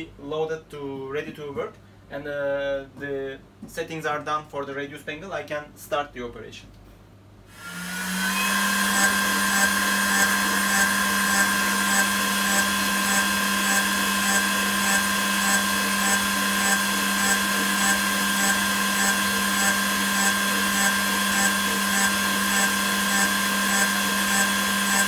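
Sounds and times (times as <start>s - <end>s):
milling machine high whine: 7.5s - 25.0s.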